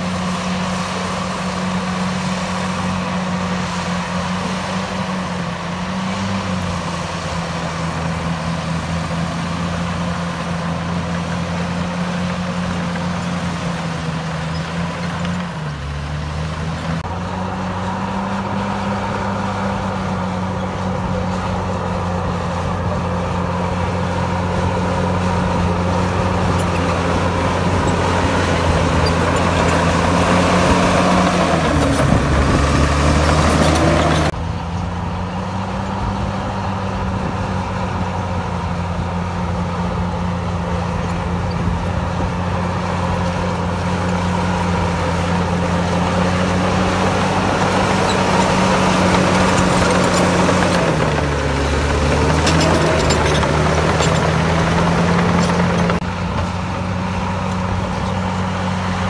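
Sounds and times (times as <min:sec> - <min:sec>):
heavy diesel engine running: 0:00.0 - 0:59.0.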